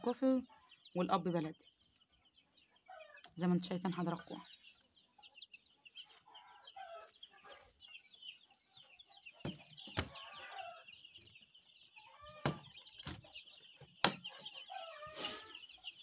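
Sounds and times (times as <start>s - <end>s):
ducklings and chicks peeping: 0.0s - 16.0s
sharp knocks: 12.4s - 13.2s, 14.0s - 14.2s.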